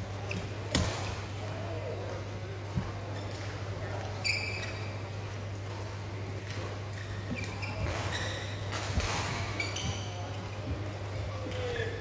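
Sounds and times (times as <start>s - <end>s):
racket hitting shuttlecock: 0.3s - 1.2s, 7.3s - 9.9s
shoes squeaking on court: 3.0s - 5.2s, 6.8s - 10.8s.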